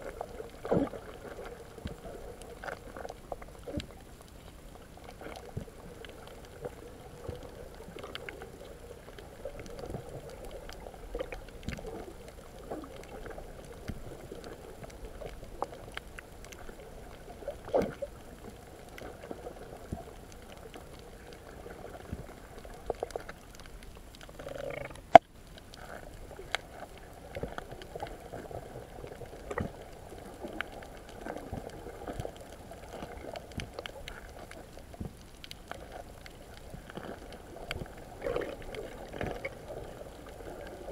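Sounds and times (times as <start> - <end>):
muffled underwater water wash: 0.0 - 40.9
underwater clicks and pops: 22.0 - 26.7.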